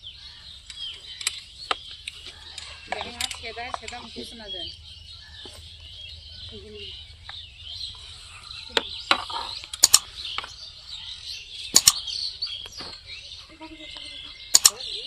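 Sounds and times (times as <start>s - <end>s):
birds chirping: 0.0s - 15.0s
sharp clicks or knocks: 8.7s - 10.6s, 11.7s - 12.2s, 14.5s - 14.8s.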